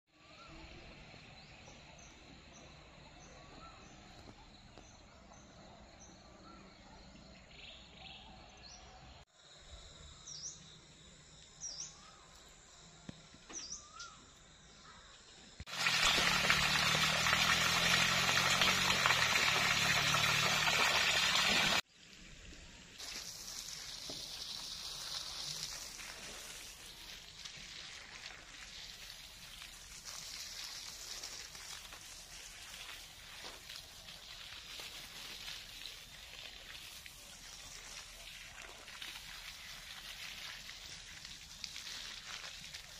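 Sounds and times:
garden hose spraying water: 10.3s - 42.9s.

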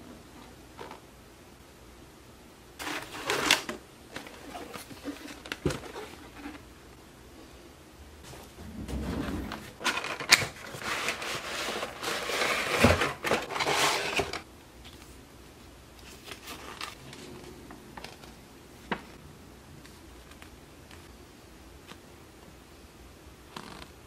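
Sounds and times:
plastic and paper crinkling: 2.8s - 6.7s, 8.9s - 15.1s, 16.0s - 19.2s.

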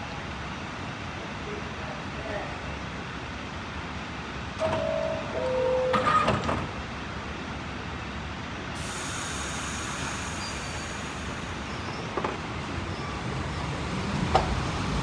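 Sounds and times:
train low rumble: 0.0s - 15.0s
train doors closing: 4.5s - 6.9s, 8.8s - 15.0s
air hiss: 8.8s - 12.1s.

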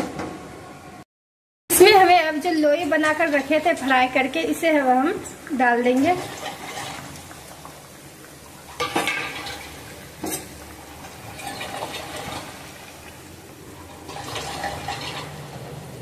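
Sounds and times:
spatula stirring liquid sloshing: 5.9s - 7.6s, 8.6s - 15.7s.

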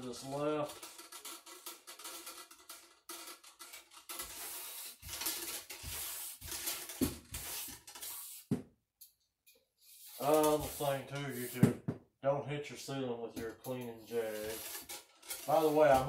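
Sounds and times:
bore brush scrubbing in barrel: 0.0s - 8.5s, 9.8s - 11.6s, 13.6s - 16.0s.

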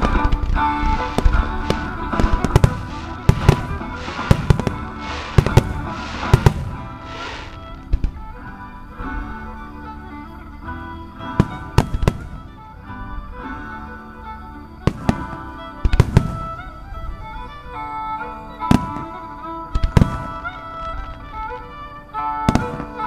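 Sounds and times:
fireworks bursting with sharp bangs: 0.0s - 8.2s, 11.3s - 12.6s, 14.8s - 16.7s, 18.7s - 19.1s, 19.8s - 20.5s, 22.5s - 23.0s
music: 0.0s - 23.0s.

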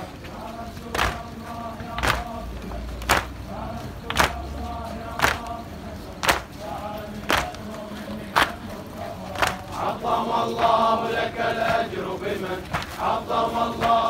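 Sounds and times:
faint chanting voices: 0.0s - 14.0s
hands slapping chests: 0.9s - 1.3s, 1.9s - 2.3s, 3.0s - 3.4s, 4.0s - 4.4s, 5.2s - 5.5s, 6.2s - 6.5s, 7.2s - 7.6s, 8.4s - 8.6s, 9.4s - 9.7s, 12.7s - 13.0s.

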